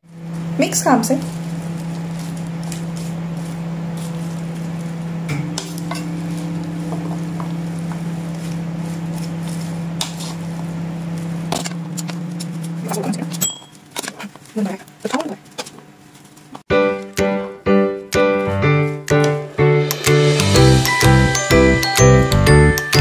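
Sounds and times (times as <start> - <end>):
steady low hum: 0.0 - 16.6
spoons clinking on ceramic bowl: 13.3 - 13.8.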